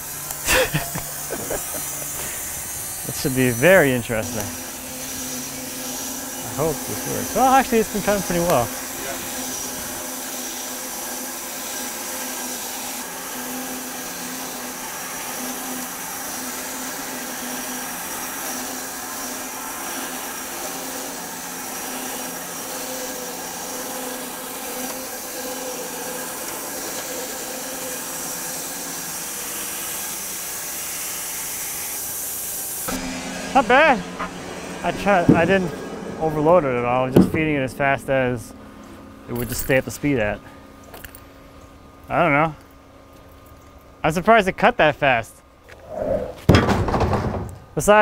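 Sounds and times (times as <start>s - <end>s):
blade sawing through wood: 0.0s - 37.9s
bandsaw motor hum and whine: 0.0s - 48.0s.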